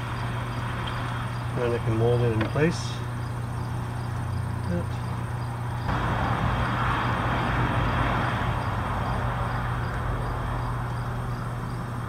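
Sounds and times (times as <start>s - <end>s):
low hum of vehicles: 0.0s - 12.0s
rush of traffic: 5.1s - 12.0s.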